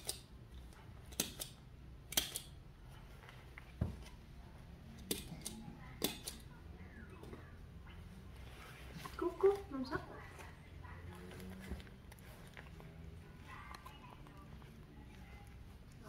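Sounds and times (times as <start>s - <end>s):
metal hand tool snipping: 1.1s - 2.6s.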